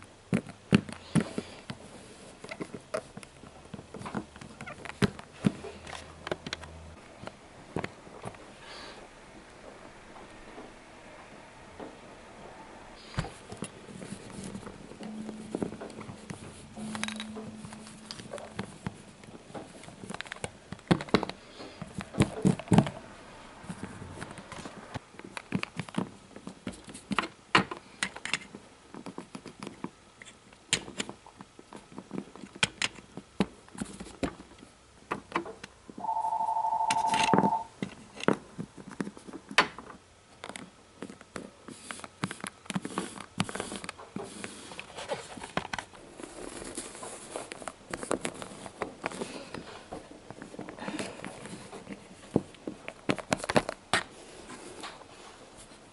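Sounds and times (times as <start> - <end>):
steady electronic tone: 36.0 - 37.7.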